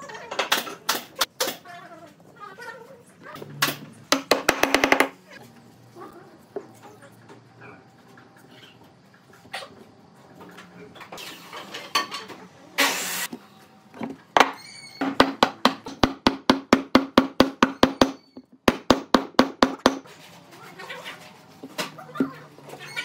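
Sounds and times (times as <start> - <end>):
rapid hammering on wood: 4.1 - 5.2, 15.2 - 20.0.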